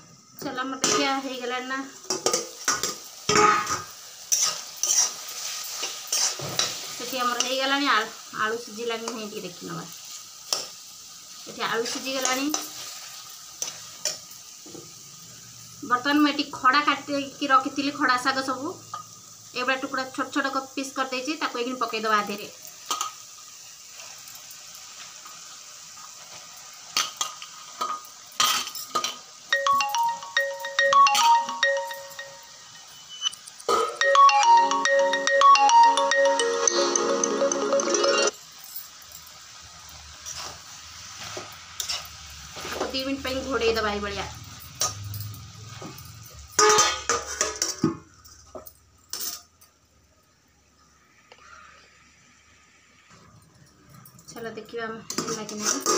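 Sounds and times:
steel plate knocking on pan: 2.1s - 3.9s
electronic bell-like tune: 29.5s - 38.4s.

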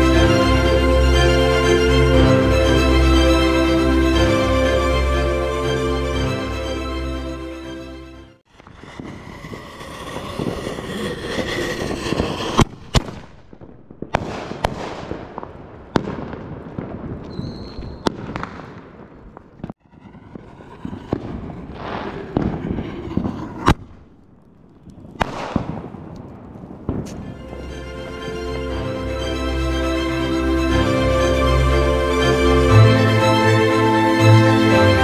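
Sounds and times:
fireworks banging: 8.4s - 35.0s
fireworks crackling and hissing: 8.5s - 29.7s.

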